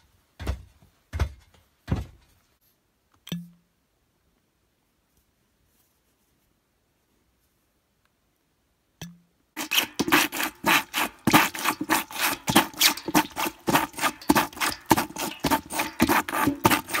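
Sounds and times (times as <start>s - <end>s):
plunger squelching in water: 9.6s - 17.0s.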